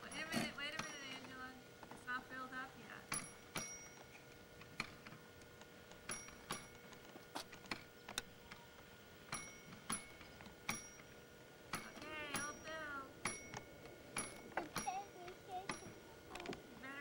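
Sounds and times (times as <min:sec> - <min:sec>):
toy gas pump clicks: 0:13.2 - 0:16.6.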